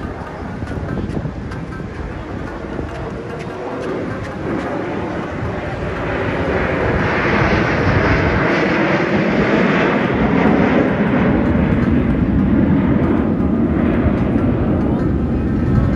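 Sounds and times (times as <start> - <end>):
fighter jets flying past: 0.0 - 15.9.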